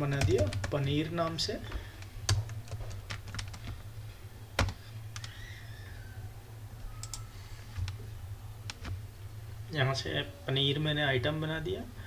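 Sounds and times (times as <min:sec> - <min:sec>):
steady low hum: 0:00.0 - 0:12.0
keyboard typing: 0:00.1 - 0:01.4, 0:02.0 - 0:03.8, 0:04.6 - 0:05.4, 0:06.9 - 0:08.0.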